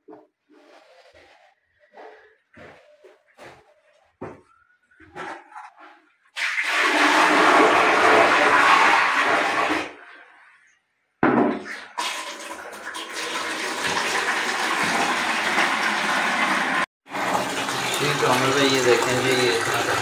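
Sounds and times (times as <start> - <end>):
toilet flushing water rush: 6.4 - 10.3, 11.7 - 20.0.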